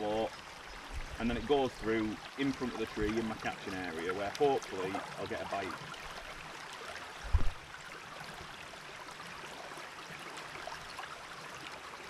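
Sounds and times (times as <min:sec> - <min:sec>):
river water flowing: 0:00.0 - 0:12.0
loud low thump: 0:07.3 - 0:07.6.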